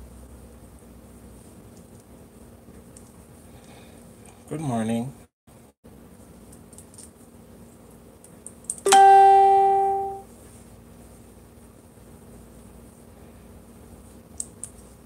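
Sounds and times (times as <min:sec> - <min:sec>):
faint steady hum: 0:00.0 - 0:15.0
ringing musical note: 0:08.9 - 0:10.2.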